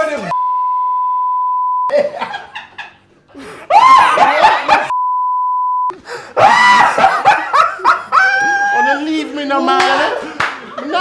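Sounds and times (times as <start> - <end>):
censor bleep: 0.3 - 1.9, 4.9 - 5.9
people laughing and shrieking: 3.6 - 4.9, 6.4 - 9.2.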